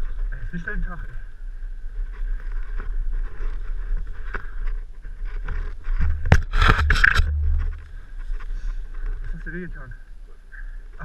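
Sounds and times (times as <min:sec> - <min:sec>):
knocks and rubbing on camera: 0:05.4 - 0:09.1.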